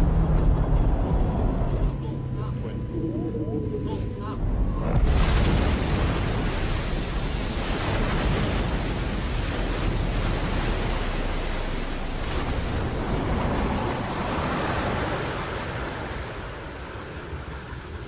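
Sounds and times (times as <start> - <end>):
deep rumble: 0.0 - 17.6
water rushing and spraying: 4.4 - 18.0.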